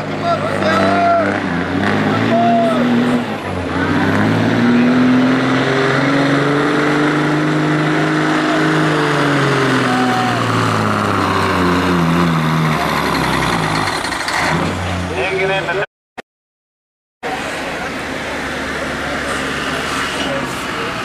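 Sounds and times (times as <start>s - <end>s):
diesel truck engine under load: 0.0s - 15.8s.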